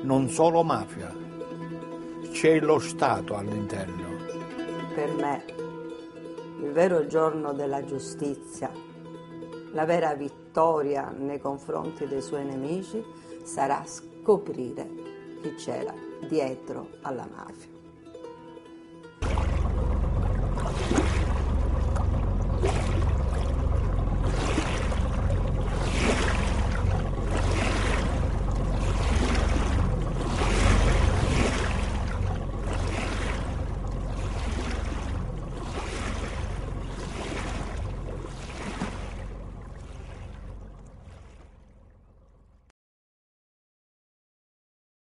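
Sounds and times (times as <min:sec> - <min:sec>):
sea swell rushing: 0:19.2 - 0:41.8
deep wind rumble: 0:19.2 - 0:42.1.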